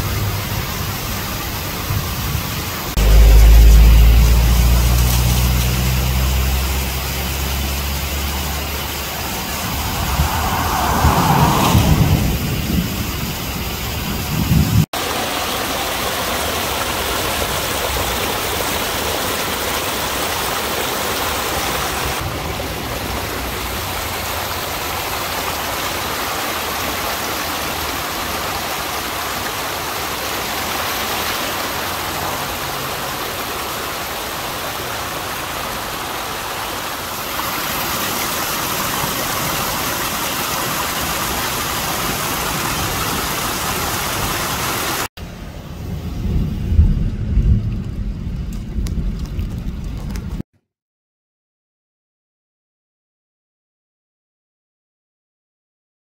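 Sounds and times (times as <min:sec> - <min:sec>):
water rushing over rocks: 0:00.0 - 0:45.1
heavy low rumble: 0:01.9 - 0:14.8, 0:45.2 - 0:50.4.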